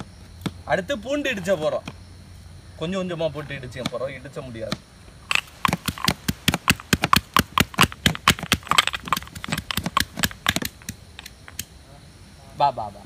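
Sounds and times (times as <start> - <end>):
pestle pounding in stone mortar: 4.7 - 11.6.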